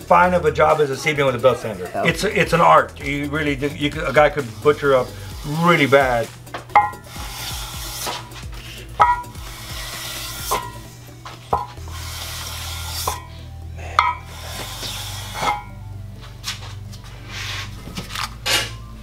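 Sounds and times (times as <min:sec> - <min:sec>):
stone scraping on metal: 0:04.2 - 0:13.3, 0:14.0 - 0:15.8
stone clinking on metal: 0:06.8 - 0:07.0, 0:09.0 - 0:09.4, 0:14.0 - 0:14.3.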